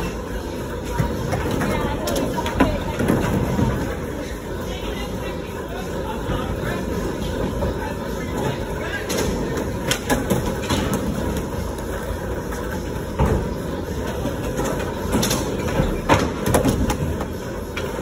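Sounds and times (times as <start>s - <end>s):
skateboards clacking on floor: 8.3s - 18.0s.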